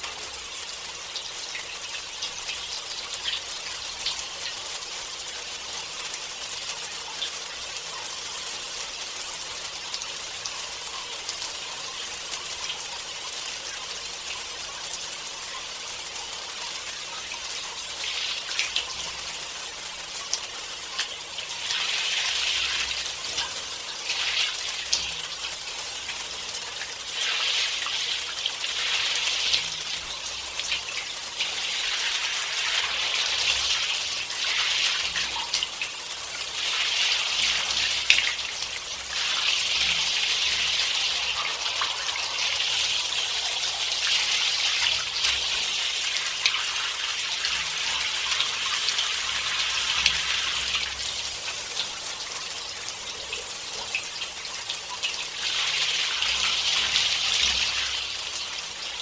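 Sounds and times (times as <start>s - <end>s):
shower water spraying: 14.0s - 58.8s.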